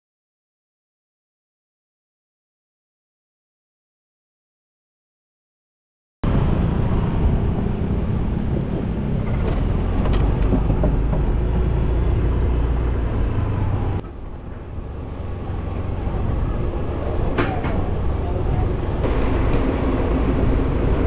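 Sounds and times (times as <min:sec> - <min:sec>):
wind and road noise: 0:06.2 - 0:21.0.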